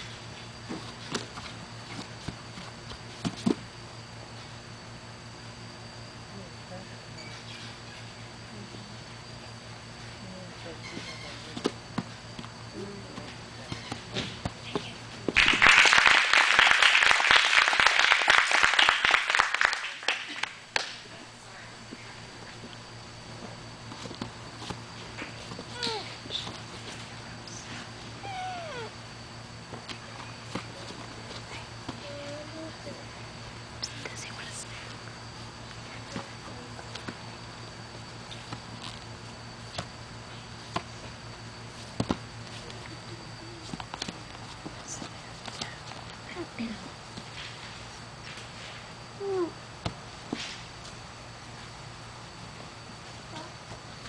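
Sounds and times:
low hum with high whine: 0:00.0 - 0:54.0
audience clapping and cheering: 0:15.4 - 0:21.0.

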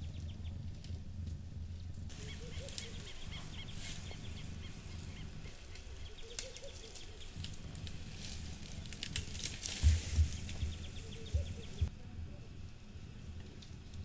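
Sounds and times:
twigs crackling: 0:00.0 - 0:11.9
rustling leaves: 0:00.0 - 0:14.0
bird calling: 0:02.1 - 0:11.9.

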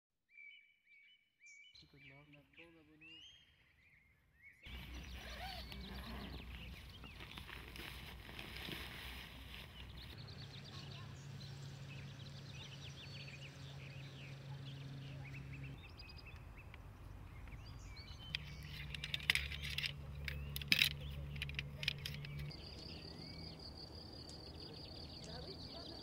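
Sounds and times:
small birds chirping: 0:00.3 - 0:26.0
tent poles clicking and clattering: 0:04.7 - 0:10.2, 0:18.3 - 0:22.6
steady low hum: 0:04.7 - 0:26.0.

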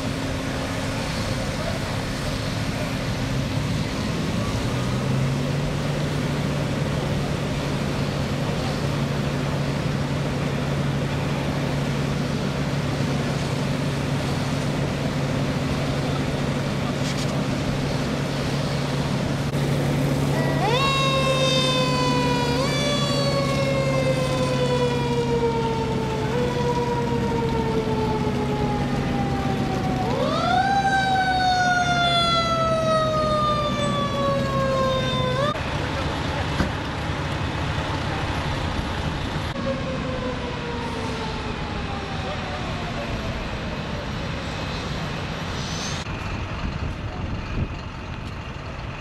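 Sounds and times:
fire engine siren: 0:00.0 - 0:47.3
low engine drone: 0:00.0 - 0:49.0
faint siren winding down: 0:19.5 - 0:35.6, 0:39.5 - 0:44.8
hose streams hissing: 0:44.7 - 0:46.2.

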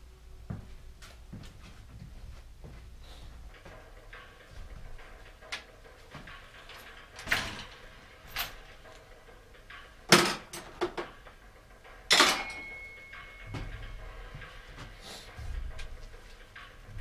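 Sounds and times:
bicycle metal clanks and knocks: 0:03.4 - 0:17.0.

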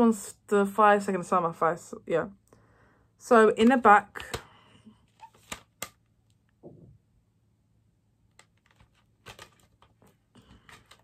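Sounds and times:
plastic cd case clicking: 0:05.2 - 0:06.0, 0:08.3 - 0:10.0.

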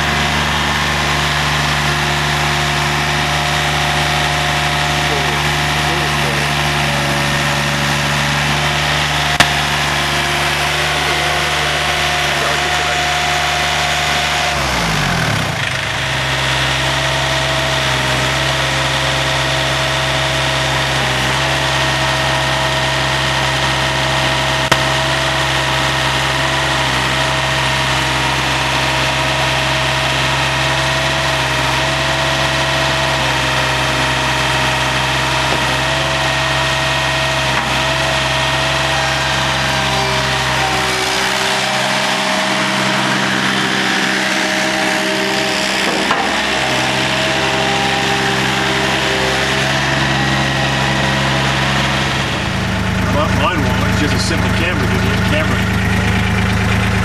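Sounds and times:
loader engine running: 0:00.0 - 0:57.0.

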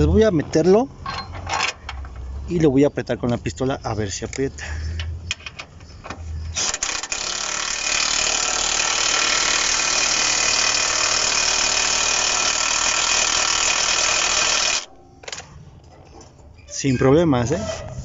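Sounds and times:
cordless impact wrench running: 0:06.5 - 0:14.9.

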